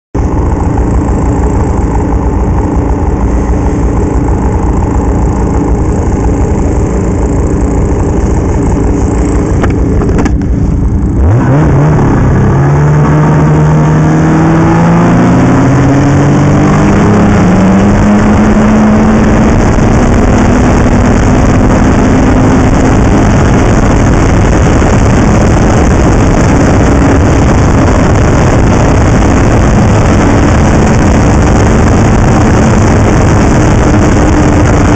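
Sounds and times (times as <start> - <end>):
continuous rush of noise: 0.2 - 34.9
snowmobile engine running: 0.2 - 34.9.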